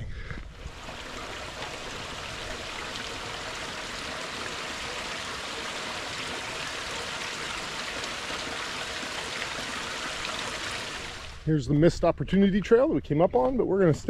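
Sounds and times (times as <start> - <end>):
running water rushing: 0.4 - 11.5.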